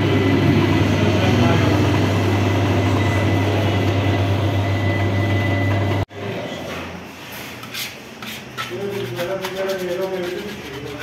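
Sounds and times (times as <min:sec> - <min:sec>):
dough mixer motor hum: 0:00.0 - 0:06.0.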